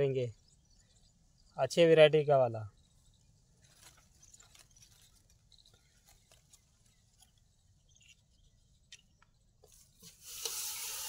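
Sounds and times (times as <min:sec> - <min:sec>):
scratching in loose soil: 0:02.8 - 0:11.0.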